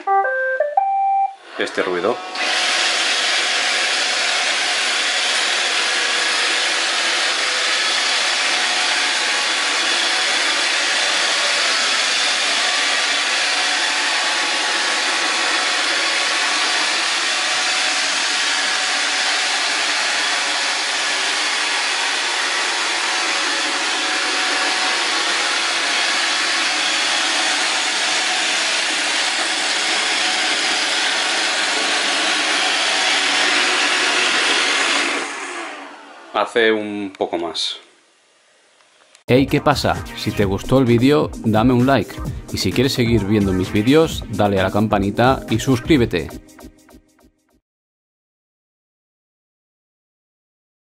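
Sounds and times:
robot vacuum whirring: 2.0 - 36.4.

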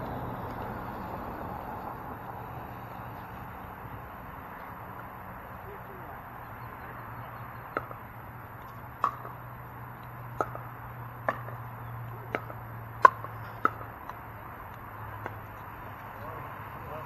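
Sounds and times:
steady low hum: 0.0 - 17.0
paddles hitting plastic ball: 7.7 - 16.2.

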